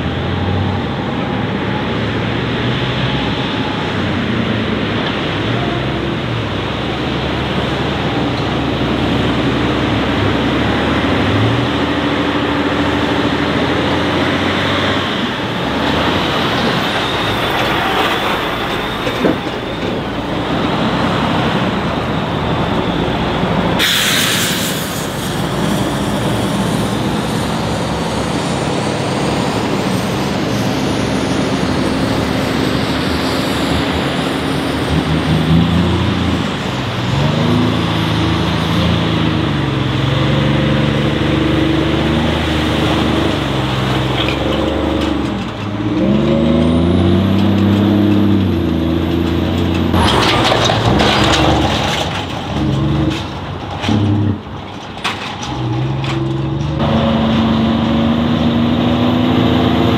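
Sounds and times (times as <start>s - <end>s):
engine revving: 0.0s - 54.5s, 55.4s - 59.9s
diesel truck engines running: 0.0s - 59.9s
trucks driving through mud and water: 0.0s - 59.9s
short loud hiss: 23.8s - 25.7s.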